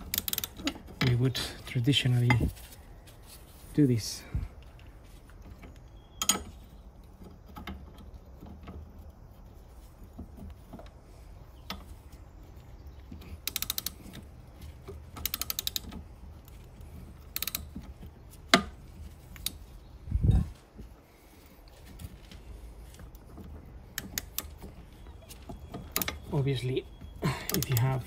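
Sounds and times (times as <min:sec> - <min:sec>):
socket ratchet clicking: 0:00.0 - 0:00.8, 0:13.4 - 0:14.3, 0:15.1 - 0:16.0, 0:17.2 - 0:17.8, 0:23.9 - 0:24.6.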